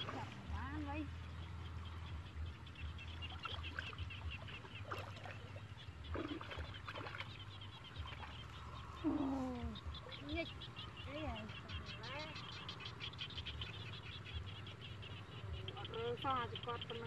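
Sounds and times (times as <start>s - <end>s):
water splashing: 0.0s - 0.9s, 3.1s - 10.5s.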